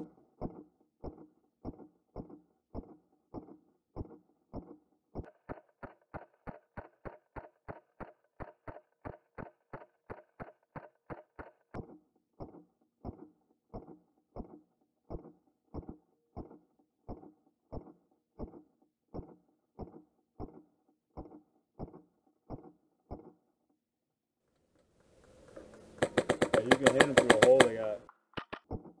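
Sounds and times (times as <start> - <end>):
thudding beat with clicks: 26.0 - 29.0.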